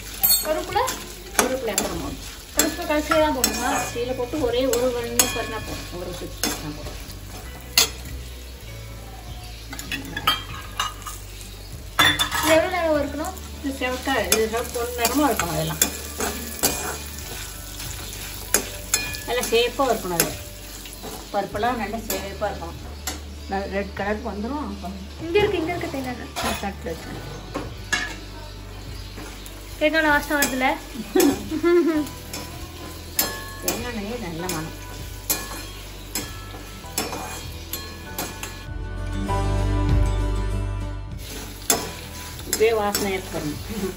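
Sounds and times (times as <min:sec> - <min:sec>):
food sizzling in oil: 0:00.0 - 0:39.8, 0:41.1 - 0:43.9
metal spoon scraping pan: 0:00.1 - 0:08.1, 0:13.7 - 0:21.3, 0:30.2 - 0:38.7.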